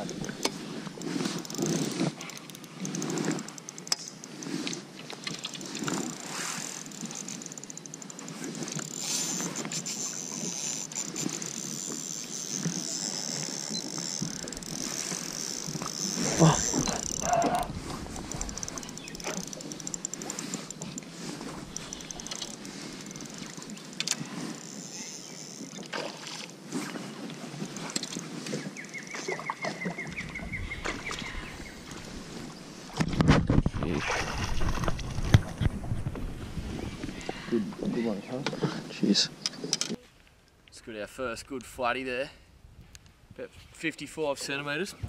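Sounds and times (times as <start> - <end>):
fishing reel ticking: 0.0 - 26.6, 27.2 - 29.2
wind rumble on microphone: 16.6 - 19.2, 33.0 - 37.9.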